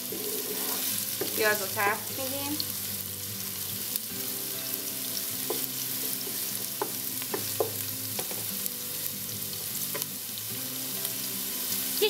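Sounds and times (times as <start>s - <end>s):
spatula scraping a pan: 0.0s - 1.5s
onion sizzling in oil: 0.0s - 12.0s.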